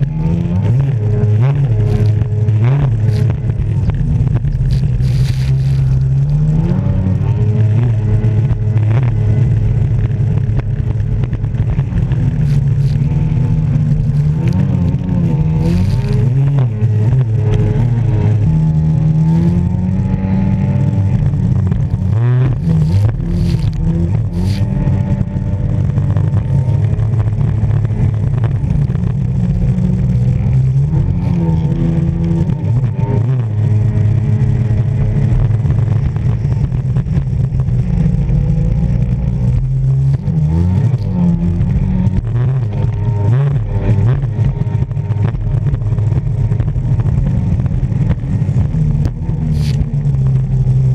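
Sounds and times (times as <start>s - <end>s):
jet ski engine running: 0.0s - 50.9s.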